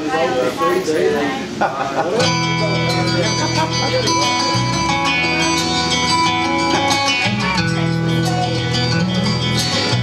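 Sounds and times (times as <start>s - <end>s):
country guitars playing: 2.0s - 10.0s
steady bass line: 2.2s - 10.0s.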